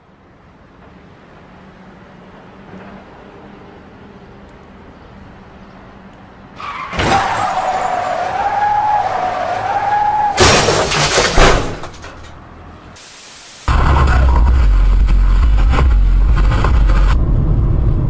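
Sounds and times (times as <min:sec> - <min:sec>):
car tyres skidding: 0:06.5 - 0:12.1
car crash impact: 0:06.8 - 0:12.4.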